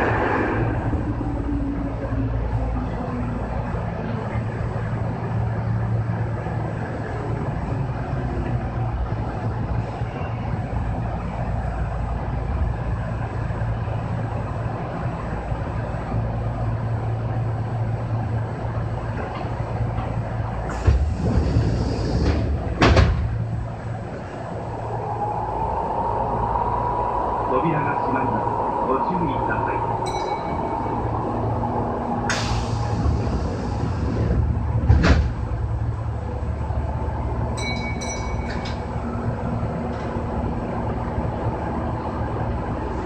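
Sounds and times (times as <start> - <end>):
sudden rush of air: 0.0 - 3.6, 20.3 - 37.6
wheels rumbling on rails: 0.0 - 43.0.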